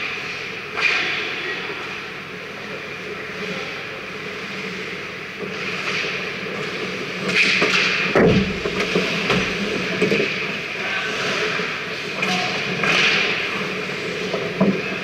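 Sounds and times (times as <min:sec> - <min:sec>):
skates scraping ice: 0:04.2 - 0:15.0.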